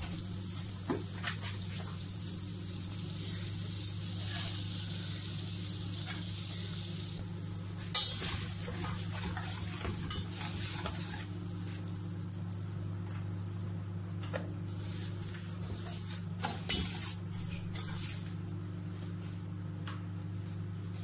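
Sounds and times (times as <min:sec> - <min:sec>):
faint sizzle: 0:00.0 - 0:21.0
spoon stirring in saucepan: 0:07.9 - 0:11.3, 0:15.0 - 0:18.4.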